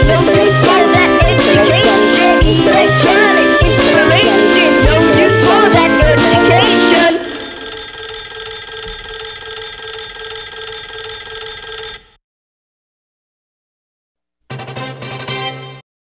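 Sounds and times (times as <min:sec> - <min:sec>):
electronic hip-hop beat: 0:02.5 - 0:09.0.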